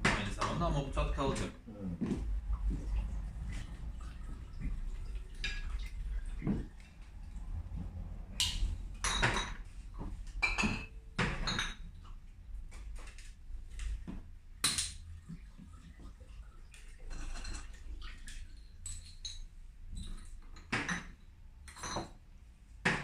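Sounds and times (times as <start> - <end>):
glassware and utensils clinking: 8.4 - 12.0, 17.0 - 22.2.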